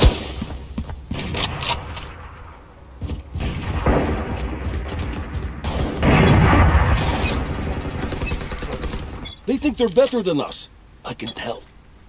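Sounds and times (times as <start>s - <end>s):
crashing impacts: 0.0s - 9.6s
heavy boom: 3.3s - 8.1s.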